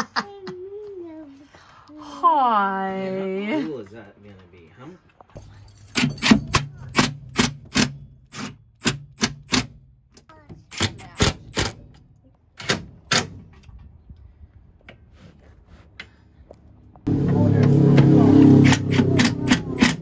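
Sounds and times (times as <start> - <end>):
impact driver hammering: 18.6 - 20.0.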